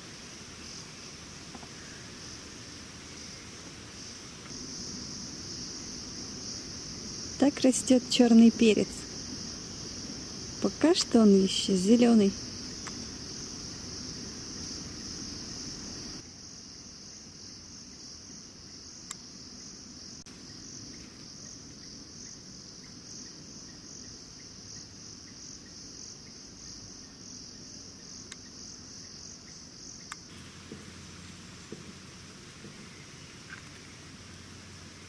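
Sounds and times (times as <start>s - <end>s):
faint clicks: 12.8s - 13.0s.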